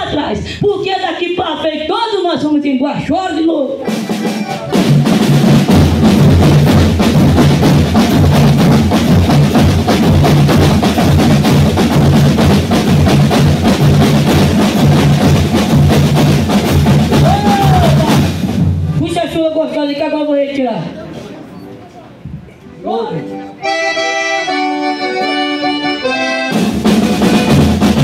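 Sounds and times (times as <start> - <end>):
accordion chords: 3.6 - 17.2, 22.6 - 28.0
snare drums beating: 3.8 - 19.2, 26.0 - 28.0
bass drum beating: 4.0 - 19.1.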